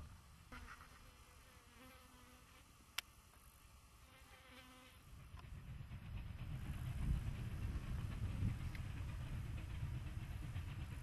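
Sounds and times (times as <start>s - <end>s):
insects buzzing faintly: 0.0s - 7.5s
steam train rumble: 5.0s - 11.0s.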